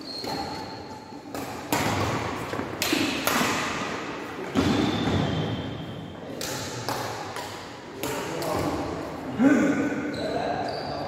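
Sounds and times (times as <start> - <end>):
rackets hitting shuttlecock: 0.1 - 8.9.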